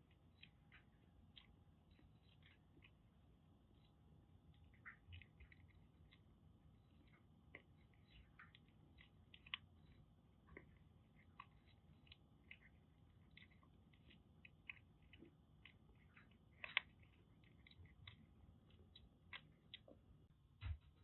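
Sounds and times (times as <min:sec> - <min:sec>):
kitten crunching dry kibble: 0:00.0 - 0:20.3.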